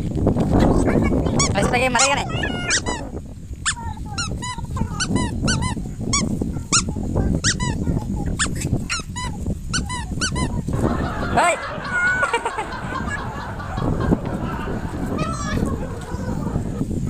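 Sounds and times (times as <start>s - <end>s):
puppies yelping: 1.6s - 3.1s, 10.8s - 16.8s.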